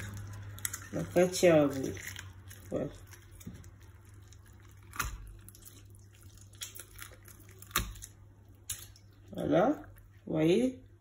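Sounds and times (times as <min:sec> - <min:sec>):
wet squelching of fish flesh: 0:00.0 - 0:09.3.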